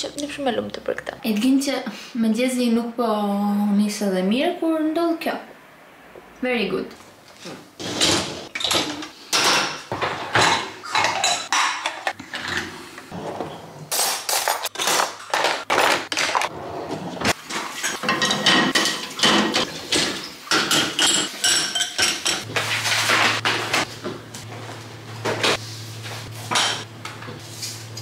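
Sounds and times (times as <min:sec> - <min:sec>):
dishes and cutlery clinking: 0:08.0 - 0:12.7, 0:17.4 - 0:23.4, 0:26.5 - 0:26.9.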